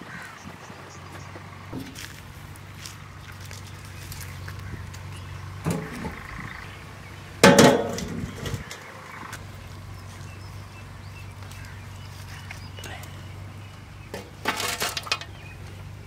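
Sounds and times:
metal tin clanging on ground: 1.8s - 2.1s, 7.4s - 8.8s, 14.1s - 15.4s.

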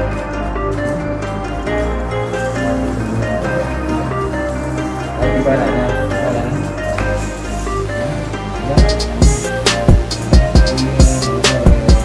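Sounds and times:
gentle melody with sustained bass: 0.0s - 12.0s.

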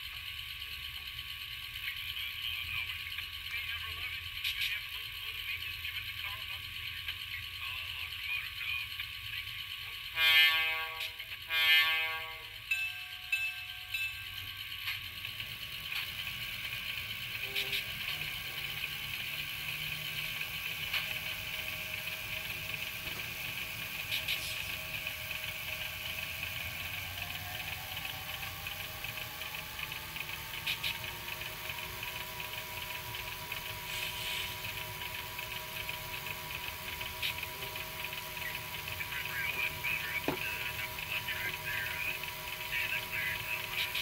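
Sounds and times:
steady hum: 0.0s - 44.0s
whine rising in pitch: 14.2s - 44.0s.

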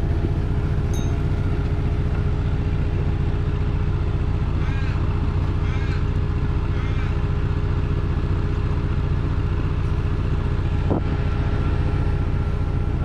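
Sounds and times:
miniature locomotive motor droning: 4.5s - 7.3s.

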